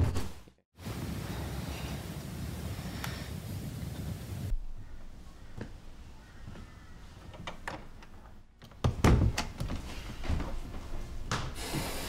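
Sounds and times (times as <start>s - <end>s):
door thumps: 7.4s - 9.8s.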